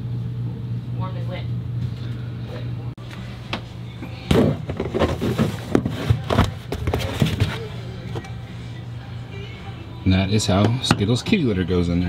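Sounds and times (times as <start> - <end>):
plastic box scraping and knocking: 4.3 - 7.6.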